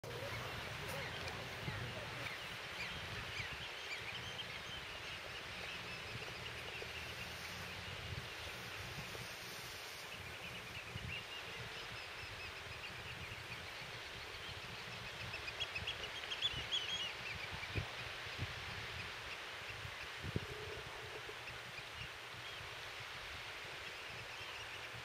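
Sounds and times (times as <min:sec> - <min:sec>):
distant birds chirping: 0:00.0 - 0:17.8
wind on microphone: 0:00.0 - 0:24.3.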